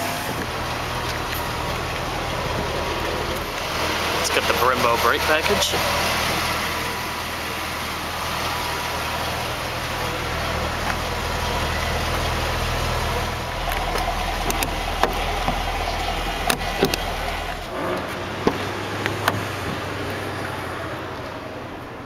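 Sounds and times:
car fuel door clicks: 13.7s - 15.7s, 16.4s - 17.1s, 18.4s - 19.9s.

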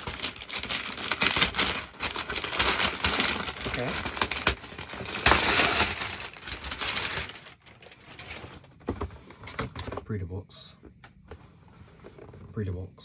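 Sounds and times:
wrapping paper crumpling: 0.0s - 8.6s.

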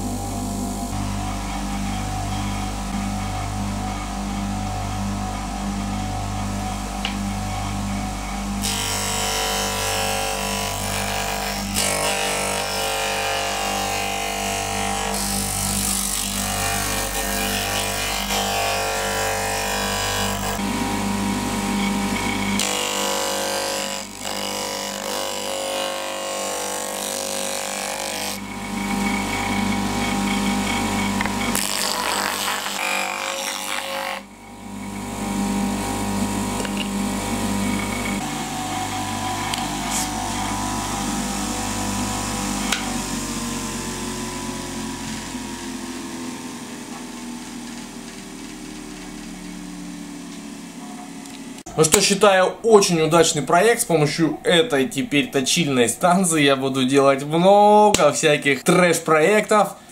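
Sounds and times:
electric motor humming: 0.0s - 56.1s
wood being sanded: 8.6s - 20.8s, 21.7s - 34.3s.

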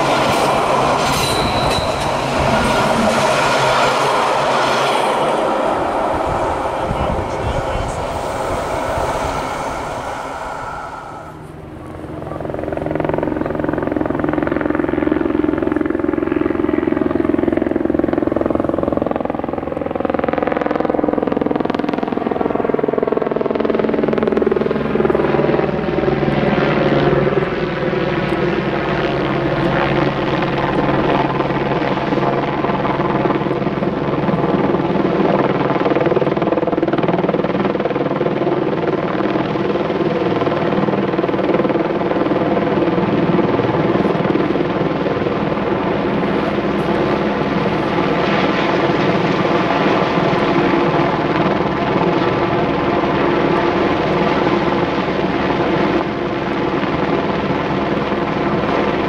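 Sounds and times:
vehicle passing with mechanical drone: 0.0s - 17.3s.

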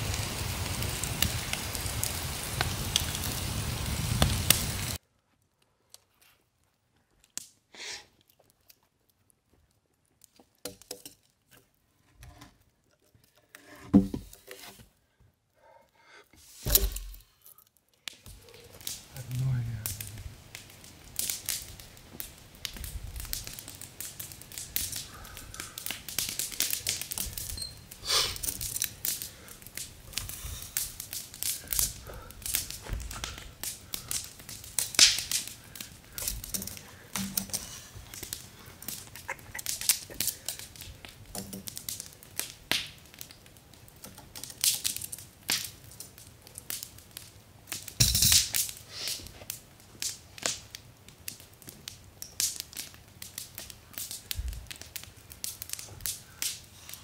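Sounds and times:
wood fire crackling: 0.0s - 57.0s
log knocking and scraping: 10.2s - 15.2s, 16.3s - 17.3s, 31.0s - 42.0s.

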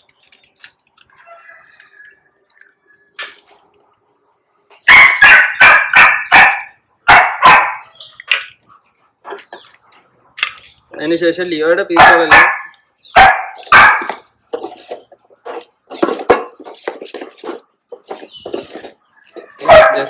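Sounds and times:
dog barking: 4.9s - 8.0s, 11.9s - 14.2s, 19.6s - 20.0s.

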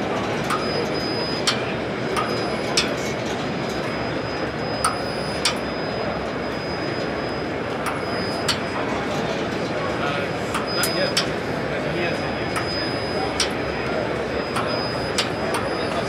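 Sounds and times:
sharp clicks and knocks: 10.5s - 11.4s.

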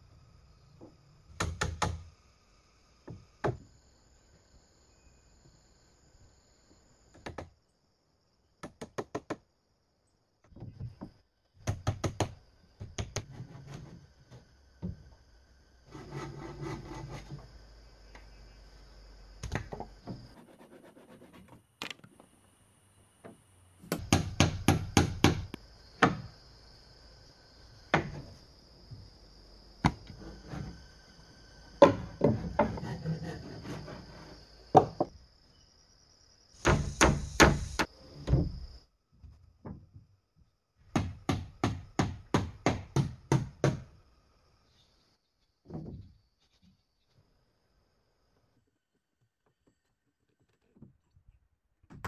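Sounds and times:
high insect buzz: 0.0s - 10.2s, 22.4s - 39.0s
wood scraping: 13.2s - 15.0s, 15.9s - 17.5s, 29.9s - 30.8s, 31.8s - 35.1s
hammer driving nails into wood: 23.9s - 26.2s, 36.6s - 37.8s.

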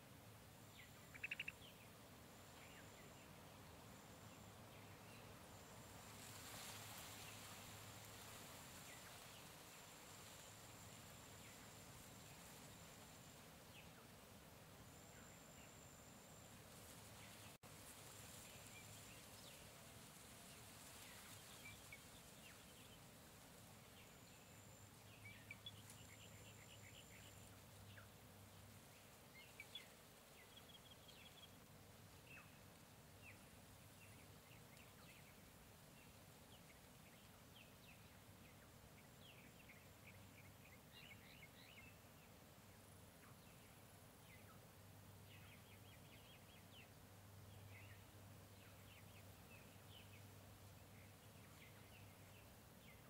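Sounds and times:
soft steady hiss: 0.0s - 53.0s
bird chirps: 0.7s - 1.8s.

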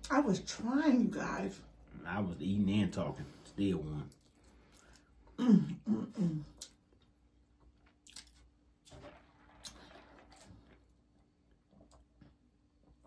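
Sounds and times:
chewing food: 6.6s - 13.0s.

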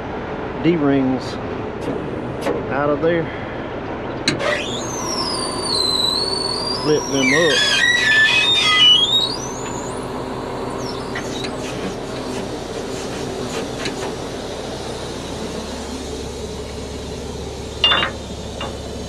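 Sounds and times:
diesel engine idling: 0.0s - 19.0s
sharp metal clank: 17.8s - 18.8s.

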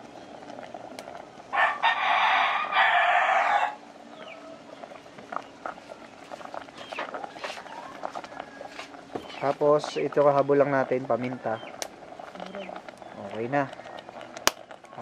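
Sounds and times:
rooster crowing: 1.5s - 4.6s, 7.2s - 9.1s.

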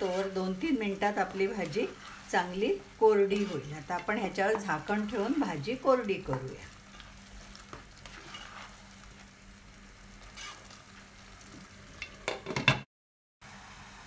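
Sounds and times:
spatula stirring in pot: 0.0s - 9.3s, 10.2s - 10.8s
soft sizzle: 0.0s - 14.0s.

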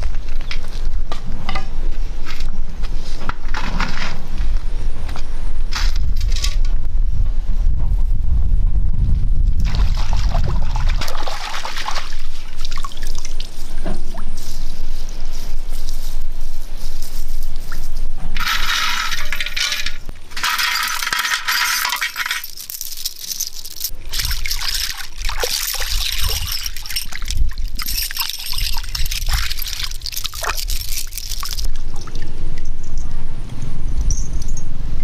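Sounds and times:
water pouring and splashing: 9.6s - 13.6s, 18.4s - 32.7s
metal jewellery clinking: 18.4s - 31.7s.

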